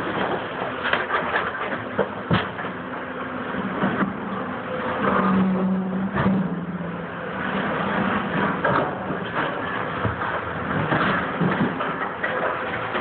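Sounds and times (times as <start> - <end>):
excavator diesel engine: 0.0 - 13.0.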